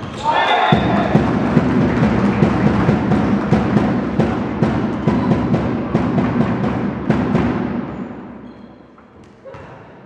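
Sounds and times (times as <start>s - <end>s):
music with heavy drum beat: 0.8s - 7.9s.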